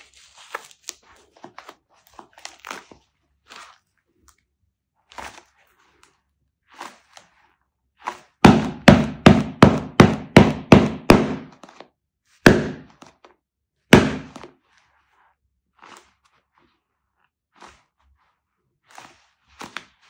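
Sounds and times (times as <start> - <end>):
sharp thwacks: 12.5 - 12.9, 14.0 - 14.5.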